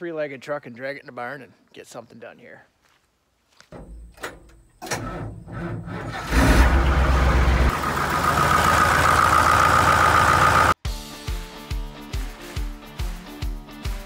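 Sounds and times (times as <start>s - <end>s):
tractor engine running: 3.8s - 10.8s.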